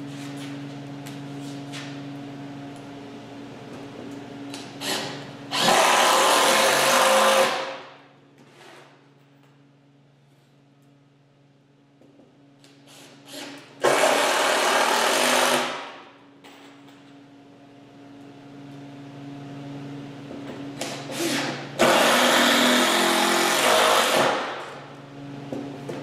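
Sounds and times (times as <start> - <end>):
cordless drill running: 4.8 - 7.7, 13.3 - 15.8, 21.1 - 24.4.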